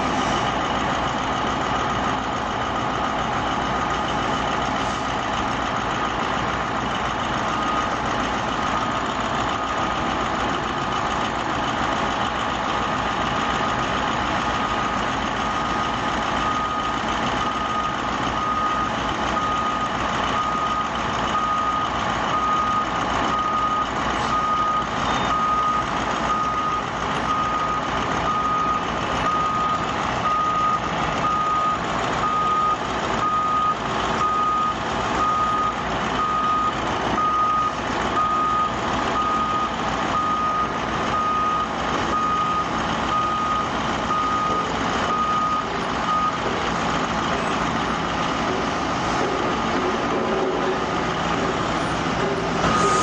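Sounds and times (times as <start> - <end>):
wheel loader engine running: 0.0 - 53.0
reversing alarm beeping: 7.4 - 9.7, 13.6 - 48.3, 52.6 - 53.0.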